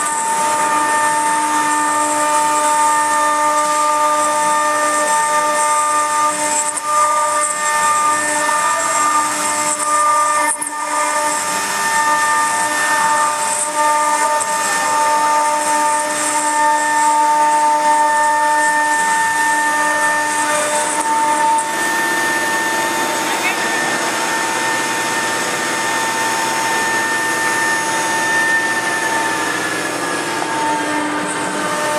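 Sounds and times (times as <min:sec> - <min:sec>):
router spindle whining: 0:00.0 - 0:31.9.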